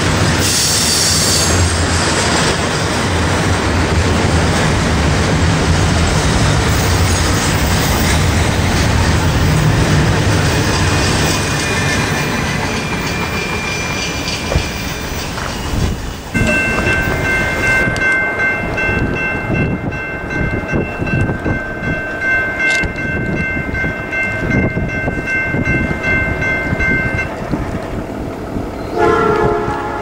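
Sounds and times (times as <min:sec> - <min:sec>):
distant train horn chord: 0:28.9 - 0:30.0
loud train horn blast: 0:28.9 - 0:30.0.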